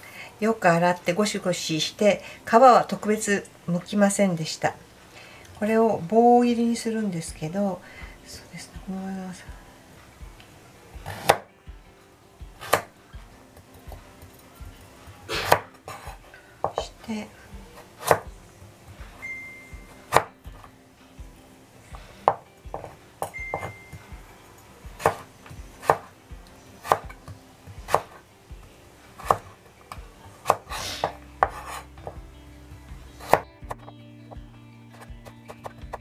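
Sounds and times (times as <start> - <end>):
knife chopping on cutting board: 11.0 - 11.5, 12.6 - 12.9, 15.3 - 16.9, 18.0 - 18.3, 20.0 - 20.7, 22.2 - 23.7, 24.9 - 26.1, 26.8 - 28.2, 29.2 - 29.6, 30.4 - 32.2, 33.2 - 33.8.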